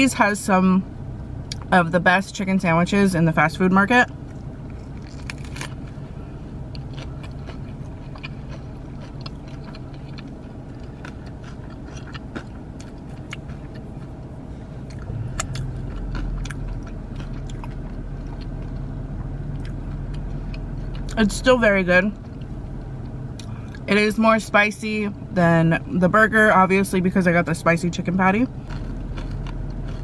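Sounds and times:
low steady hum: 0.0s - 30.0s
crunchy biting and chewing: 4.2s - 21.2s, 28.5s - 30.0s.

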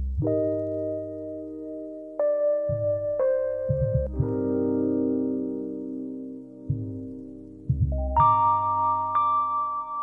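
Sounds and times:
low bass notes: 0.0s - 9.8s.

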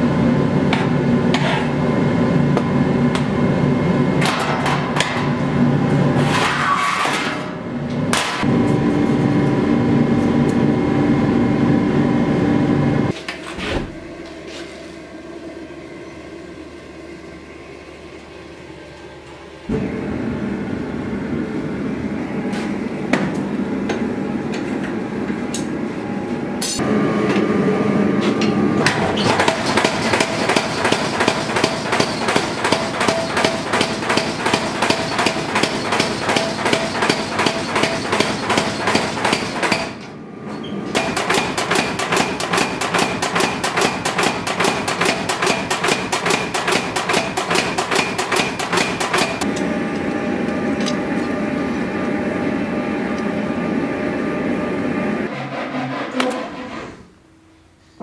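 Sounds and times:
machine running hum: 0.0s - 58.0s
power hammer striking steel: 28.9s - 40.1s, 41.0s - 49.7s.

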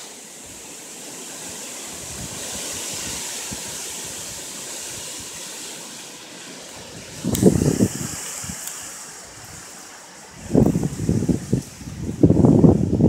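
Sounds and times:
strong wind gusting: 0.4s - 5.6s, 6.3s - 13.0s
wind buffeting microphone: 1.9s - 5.3s, 6.7s - 13.0s.

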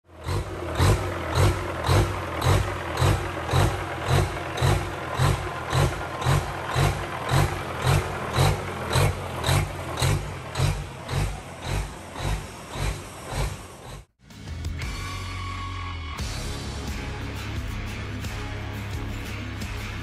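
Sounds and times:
background music with thumping beat: 14.2s - 15.4s, 16.2s - 20.0s.

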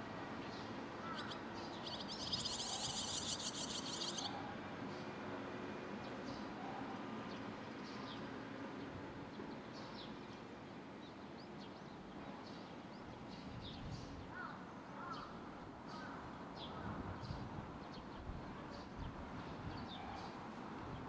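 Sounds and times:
steady background noise: 0.0s - 21.0s
lower wavering bird calls: 0.6s - 4.6s
high chirps of fledgling swallows: 1.2s - 4.4s.

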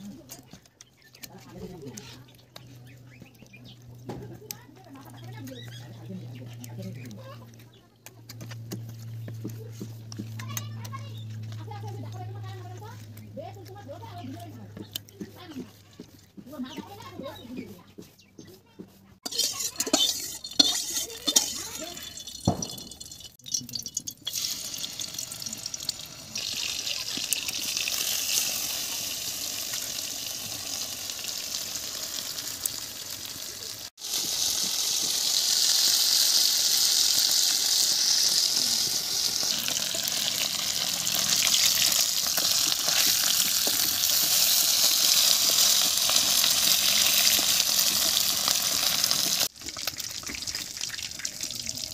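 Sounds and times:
fish sizzling in hot oil: 19.2s - 51.9s.

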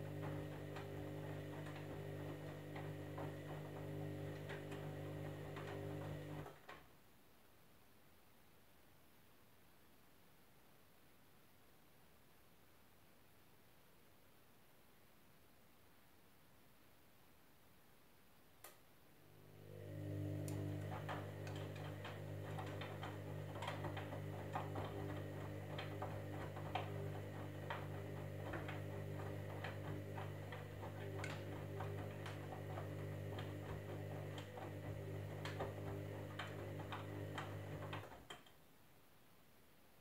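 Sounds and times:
washing machine motor humming: 0.0s - 6.7s, 19.2s - 38.4s
laundry tumbling clicks: 20.0s - 38.6s.

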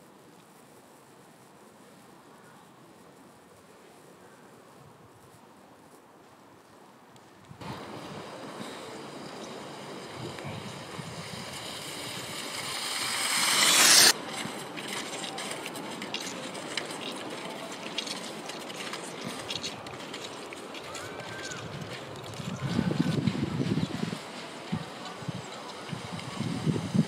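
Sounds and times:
skis and poles scraping and clicking: 0.0s - 27.0s
skis hissing over snow: 7.6s - 27.0s.

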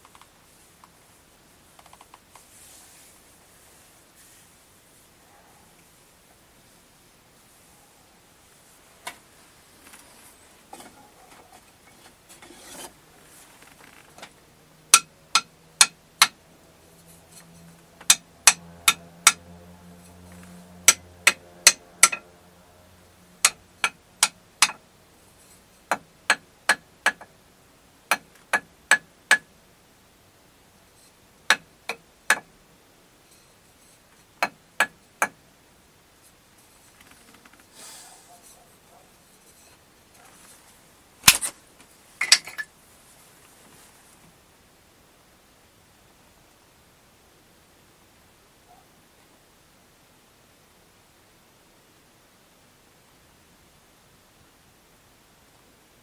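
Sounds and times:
hand tapping thin wood: 14.2s - 16.4s, 17.4s - 19.5s, 20.5s - 22.3s, 23.4s - 24.8s, 25.9s - 27.3s, 28.1s - 29.5s, 31.5s - 32.5s, 34.4s - 35.4s.

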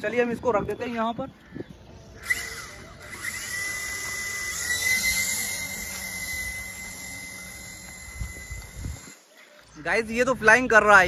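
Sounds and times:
toy helicopter rotor whine: 2.0s - 9.3s.

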